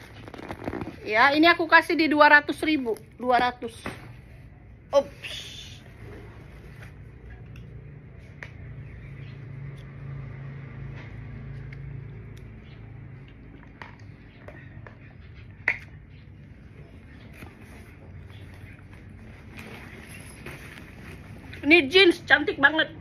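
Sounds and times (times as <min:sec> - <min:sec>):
bags clicking and rustling: 0:19.1 - 0:21.6.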